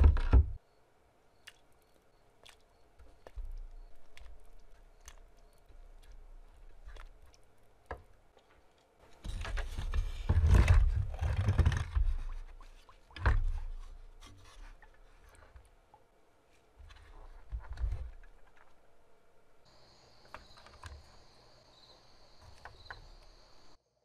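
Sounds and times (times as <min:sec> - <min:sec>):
rough scraping: 0:08.4 - 0:15.6.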